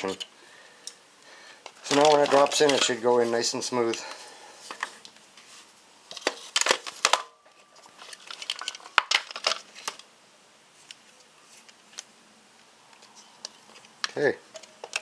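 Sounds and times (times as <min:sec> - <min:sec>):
metal tools clattering: 0:01.8 - 0:03.0.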